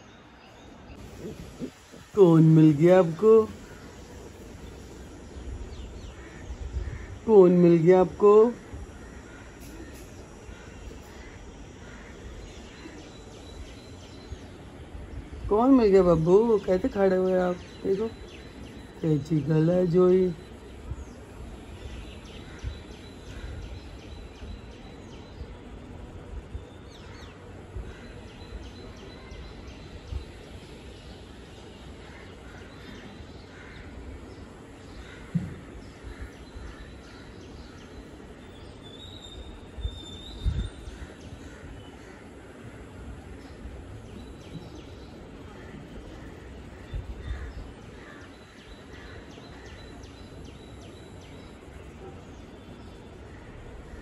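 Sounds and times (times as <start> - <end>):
bird chirping: 0.0 - 25.4
birds chirping: 0.0 - 54.0
outdoor background noise: 0.0 - 54.0
low thump: 35.3 - 35.7.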